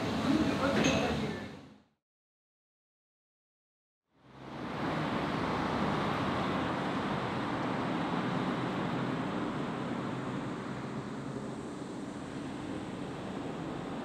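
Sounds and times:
steady rushing noise: 0:04.2 - 0:14.0.

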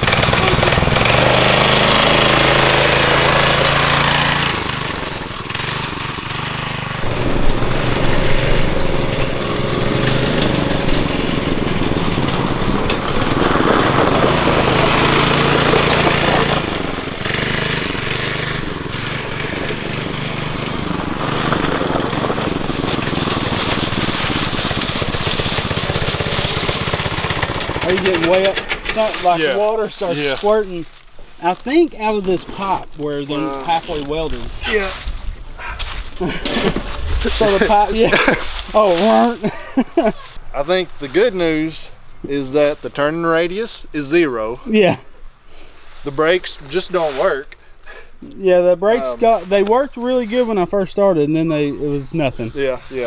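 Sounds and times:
go-kart engine running: 0:00.0 - 0:30.4, 0:35.9 - 0:40.4.

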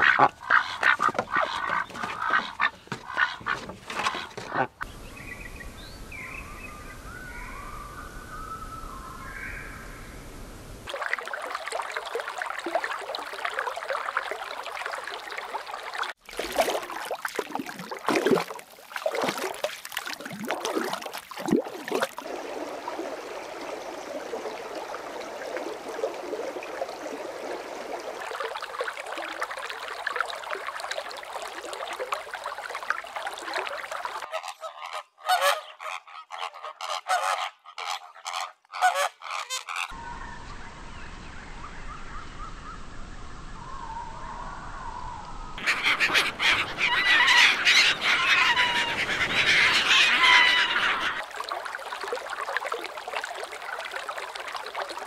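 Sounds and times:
birds chattering: 0:00.0 - 0:05.4.

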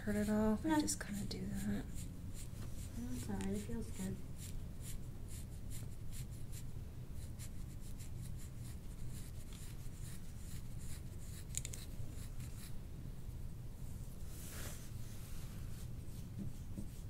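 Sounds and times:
low steady hum: 0:00.0 - 0:17.0
fingertips rubbing through hair: 0:00.1 - 0:05.0, 0:07.4 - 0:12.8, 0:14.0 - 0:17.0.

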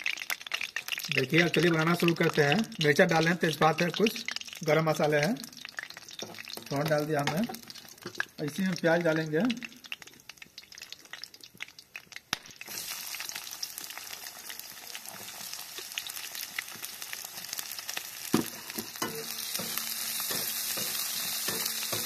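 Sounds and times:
onion sizzling in hot oil: 0:00.0 - 0:22.0
spoon knocking and scraping pan: 0:06.2 - 0:08.3, 0:18.3 - 0:22.0.

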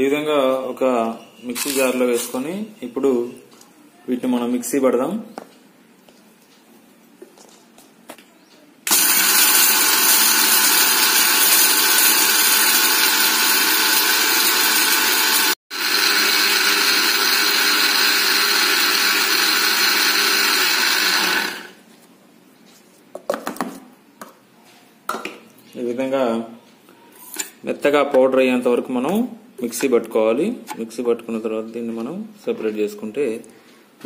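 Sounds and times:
mixer grinder grinding spices: 0:08.9 - 0:21.8.

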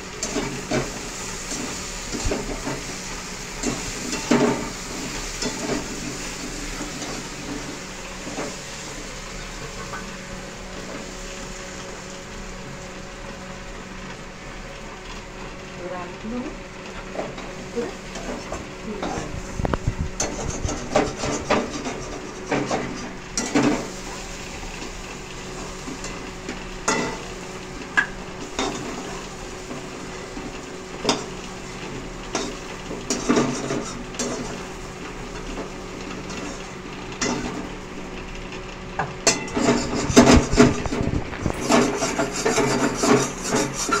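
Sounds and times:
metal spatula scraping a pan: 0:20.2 - 0:23.6, 0:39.3 - 0:40.8, 0:41.6 - 0:44.0.

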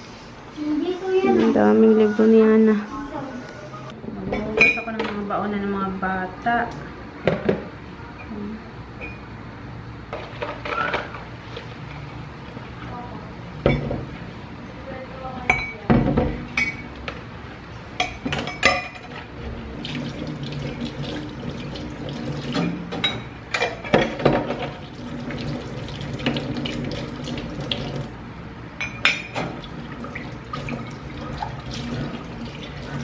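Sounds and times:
glassware clinking and knocking: 0:04.4 - 0:05.1, 0:15.5 - 0:16.8, 0:18.0 - 0:19.1, 0:22.6 - 0:24.6, 0:28.8 - 0:29.5.

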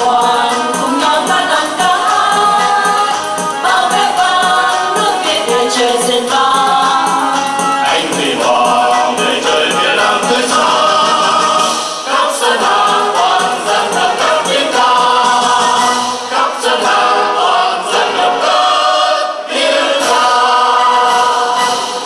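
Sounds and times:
group singing into microphones: 0:00.0 - 0:22.0.

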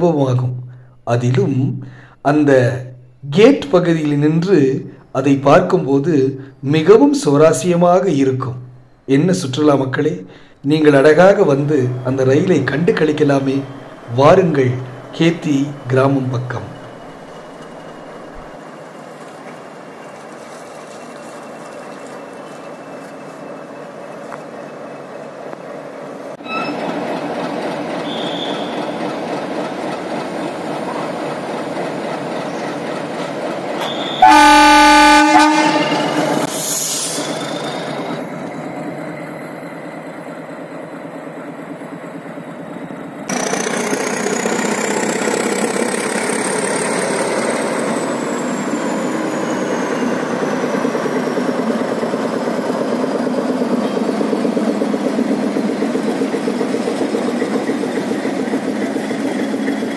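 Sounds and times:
diesel locomotive engine: 0:00.0 - 0:59.9
rumble of passing coaches: 0:03.3 - 0:18.6
high thin squeal: 0:26.4 - 0:27.0, 0:28.0 - 0:29.0, 0:33.8 - 0:38.1
train horn blast: 0:33.8 - 0:36.5.

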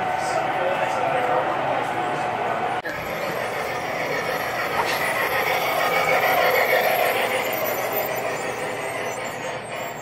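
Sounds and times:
model train rolling: 0:02.8 - 0:10.0.

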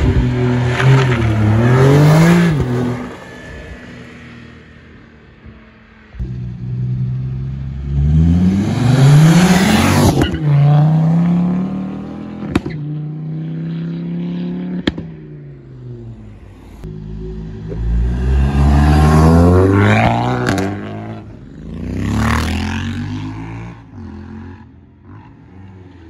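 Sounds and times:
car engines accelerating: 0:00.0 - 0:26.0.

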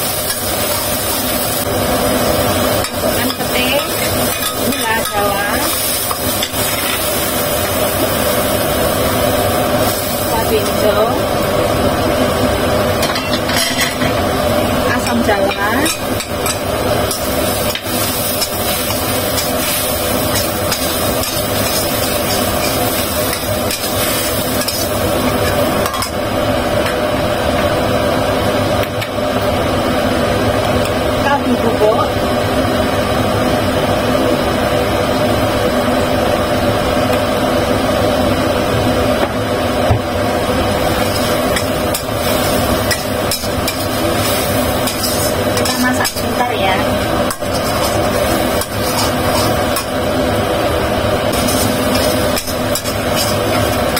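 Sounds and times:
steady mechanical hum: 0:00.0 - 0:53.9
metal spatula scraping a wok: 0:15.9 - 0:26.1, 0:41.0 - 0:46.4, 0:47.3 - 0:49.9, 0:51.3 - 0:53.9.

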